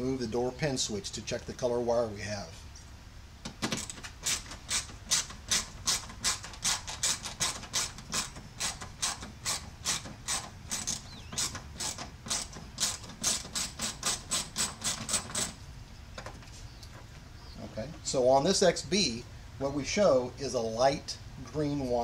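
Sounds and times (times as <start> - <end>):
hand ratchet clicking: 3.8 - 15.6.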